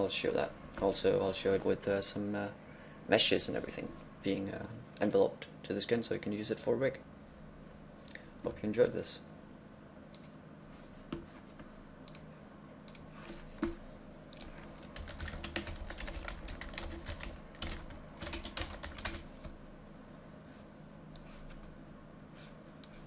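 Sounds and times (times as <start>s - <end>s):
keyboard keys clicking: 14.5s - 19.2s.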